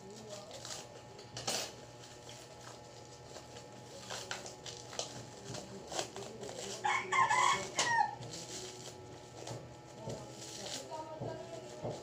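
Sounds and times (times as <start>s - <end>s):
plastic packaging crinkling: 0.0s - 1.0s, 1.8s - 6.9s, 8.3s - 12.0s
rooster crowing: 6.8s - 8.2s.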